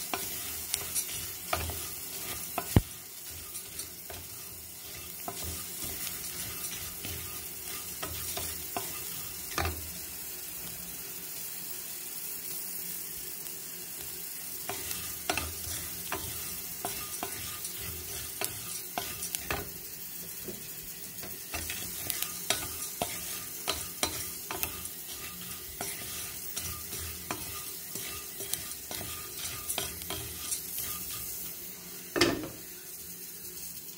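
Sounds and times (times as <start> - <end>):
spatula scraping and tapping pan: 0.0 - 10.0, 14.6 - 19.8, 20.4 - 31.5
puffed rice rustling in pan: 0.0 - 33.9.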